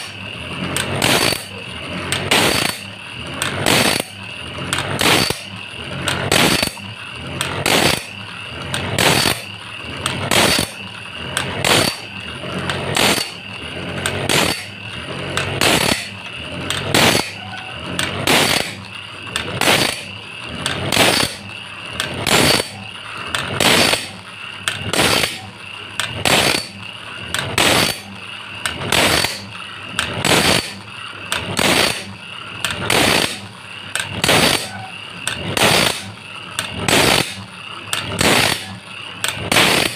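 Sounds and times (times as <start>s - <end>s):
electric motor whine: 0.0s - 39.9s
grinding wheel on saw tooth: 0.0s - 39.9s.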